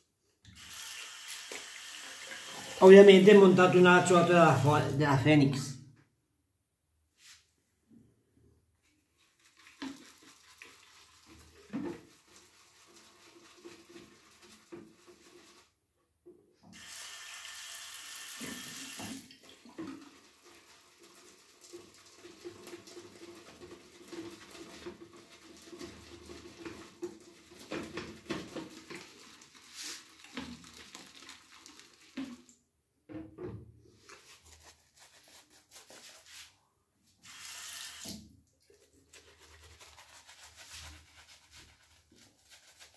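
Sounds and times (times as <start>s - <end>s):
sink tap running: 0.5s - 4.8s, 16.8s - 19.2s, 37.3s - 38.2s.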